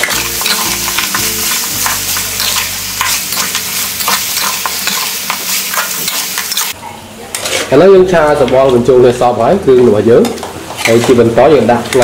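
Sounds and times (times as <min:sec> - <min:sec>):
meat sizzling in a wok: 0:00.0 - 0:06.8.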